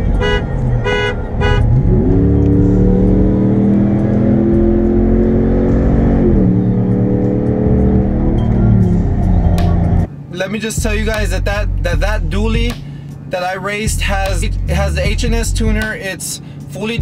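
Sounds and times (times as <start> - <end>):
pickup engine revving hard: 0.0 - 10.0.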